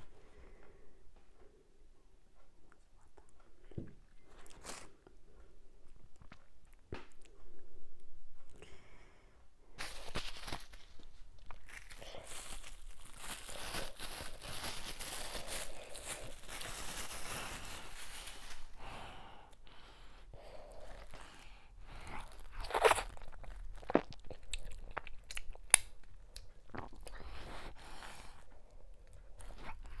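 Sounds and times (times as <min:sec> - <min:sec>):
rustling squeezing of food: 0:09.8 - 0:18.8.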